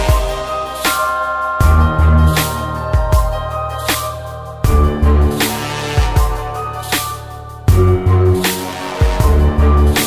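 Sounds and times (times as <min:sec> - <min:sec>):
electronic music: 0:00.0 - 0:10.0.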